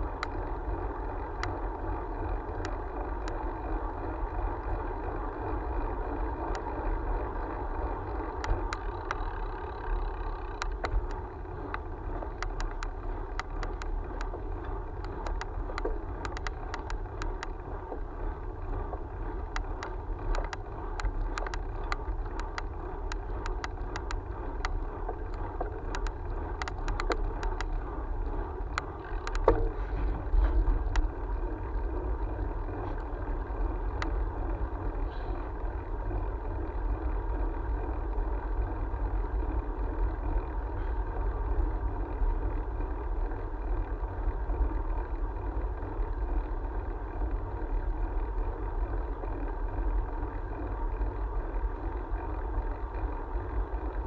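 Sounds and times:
road noise: 0:00.0 - 0:54.0
camera mount clicks and rattles: 0:15.0 - 0:17.5, 0:19.8 - 0:27.8, 0:28.7 - 0:31.1.

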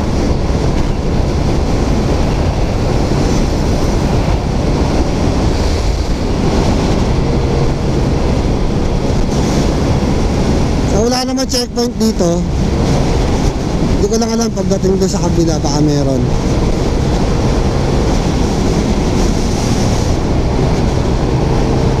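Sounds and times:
motor scooter road noise: 0:00.0 - 0:22.0
wind rushing on microphone: 0:00.0 - 0:22.0.

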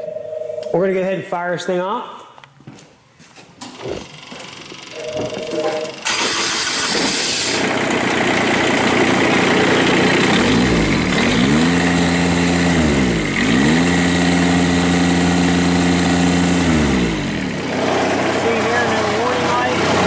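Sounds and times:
diesel engine revving: 0:05.8 - 0:20.0.

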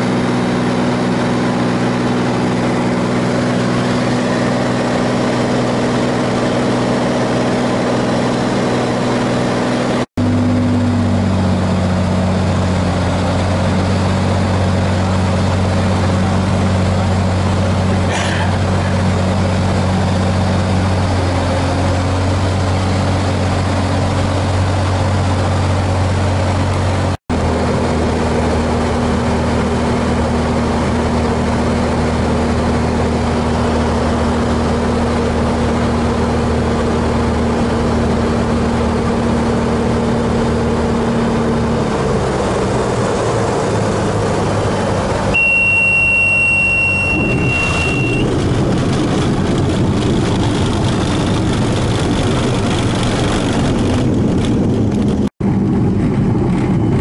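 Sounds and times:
propeller aircraft engine droning: 0:00.0 - 0:57.0
high warning tone: 0:45.3 - 0:48.4.

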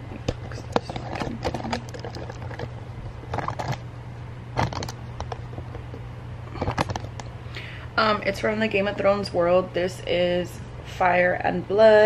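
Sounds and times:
steady low hum: 0:00.0 - 0:12.0
phone handling rustles and clicks: 0:00.2 - 0:02.7, 0:03.3 - 0:03.8, 0:04.6 - 0:07.3.

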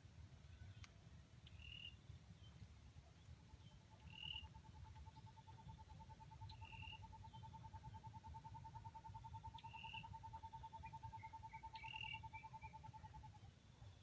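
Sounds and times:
repeated lower bird notes: 0:03.4 - 0:14.0.

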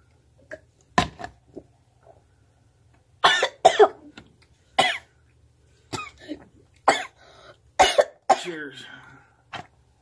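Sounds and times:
person coughing: 0:03.2 - 0:04.1, 0:04.8 - 0:05.1, 0:05.9 - 0:07.2, 0:07.8 - 0:08.9.

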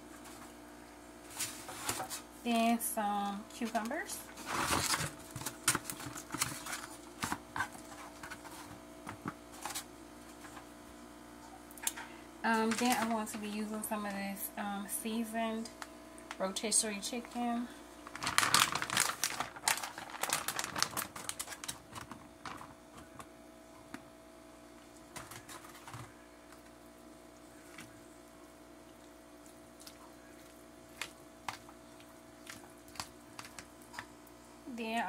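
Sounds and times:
faint steady hum: 0:00.0 - 0:35.0
plastic packaging crinkling: 0:03.6 - 0:08.8, 0:12.5 - 0:13.6, 0:18.0 - 0:23.3, 0:25.1 - 0:26.7, 0:29.8 - 0:34.1.

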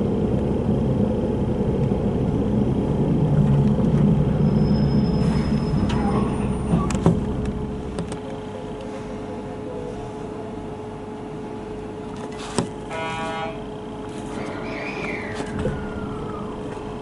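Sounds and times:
train car hum: 0:00.0 - 0:17.0
short buzzing tone: 0:12.9 - 0:13.6.

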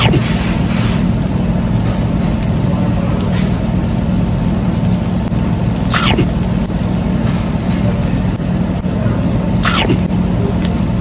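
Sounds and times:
low mechanical machinery hum: 0:00.0 - 0:11.0
quick falling sweep: 0:05.9 - 0:06.4, 0:09.6 - 0:10.1.

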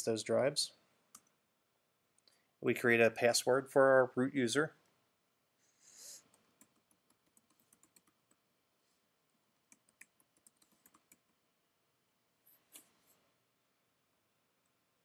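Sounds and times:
keyboard typing: 0:06.2 - 0:08.4, 0:09.6 - 0:11.4.

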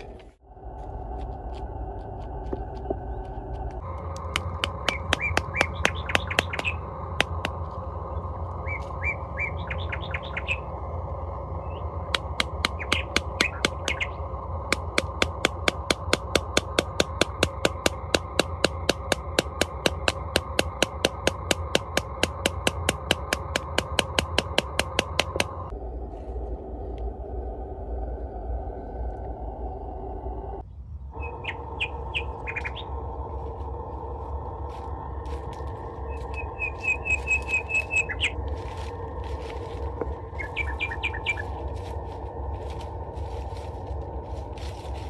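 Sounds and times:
birds chirping: 0:00.0 - 0:25.8, 0:26.6 - 0:45.0
sharp evenly spaced knocks: 0:03.8 - 0:07.8, 0:12.1 - 0:25.7.

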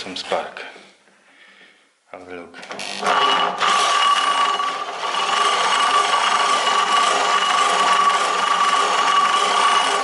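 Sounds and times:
electric drill whining: 0:02.8 - 0:10.0
engine cranking over: 0:03.0 - 0:10.0.

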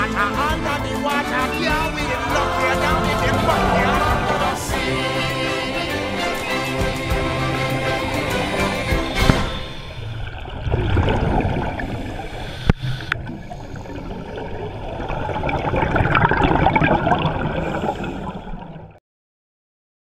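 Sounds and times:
scuba regulator bubbles gurgling: 0:09.0 - 0:19.0.

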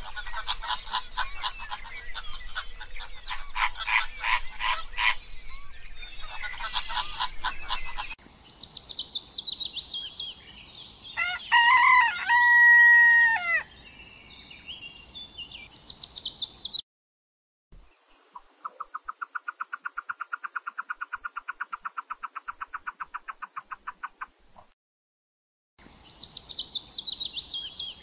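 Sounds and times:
flamingos honking and chattering: 0:00.0 - 0:05.3, 0:06.0 - 0:08.2
high falling bird chirps: 0:00.0 - 0:16.8
drawn-out crowing bird call: 0:11.2 - 0:13.7.

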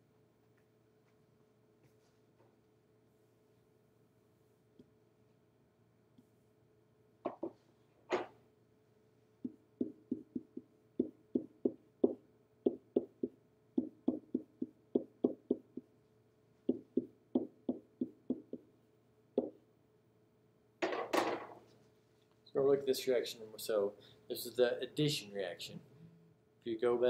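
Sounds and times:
pen tapping on whiteboard: 0:07.3 - 0:08.3, 0:09.4 - 0:15.9, 0:16.7 - 0:18.7, 0:19.4 - 0:19.6.

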